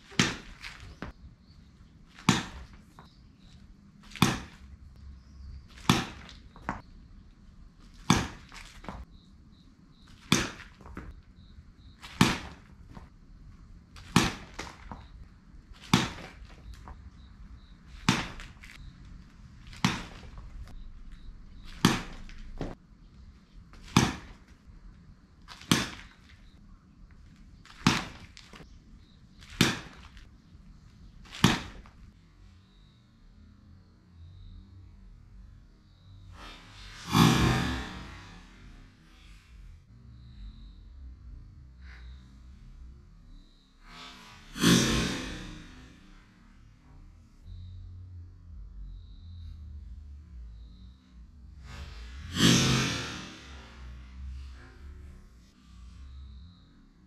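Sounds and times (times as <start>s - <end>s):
baseball bat hitting balls: 0.0s - 32.1s, 36.4s - 38.8s, 44.6s - 46.2s.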